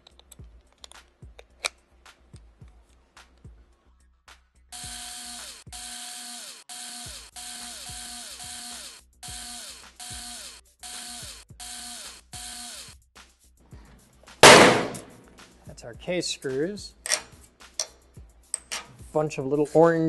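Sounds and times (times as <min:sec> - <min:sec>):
cordless screwdriver motor whine: 0:04.8 - 0:12.9.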